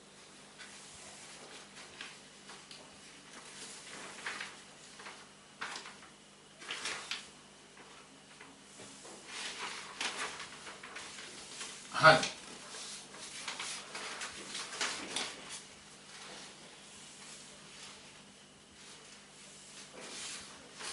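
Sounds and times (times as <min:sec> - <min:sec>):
scratchy rustling strokes: 0:08.7 - 0:20.9.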